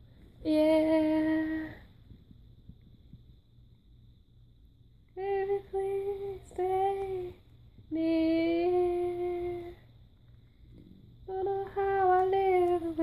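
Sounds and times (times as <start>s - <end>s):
woman singing: 0.4s - 1.9s, 5.2s - 9.9s, 11.2s - 13.0s.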